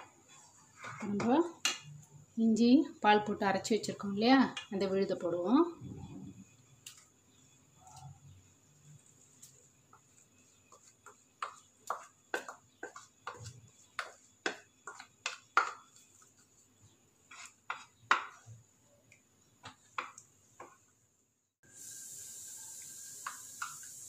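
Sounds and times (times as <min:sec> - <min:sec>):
wooden spoon knocking plastic bowl: 0:11.0 - 0:15.9.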